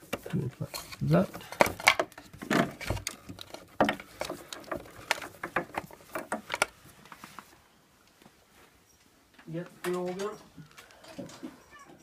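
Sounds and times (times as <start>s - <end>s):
wooden stand and metal bracket clicks: 0.0s - 6.8s.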